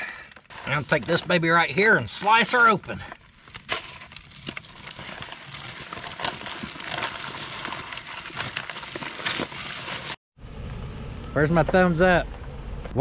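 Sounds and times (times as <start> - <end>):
paper bag crinkling: 2.4 - 10.2
dry concrete mix pouring: 3.6 - 10.2.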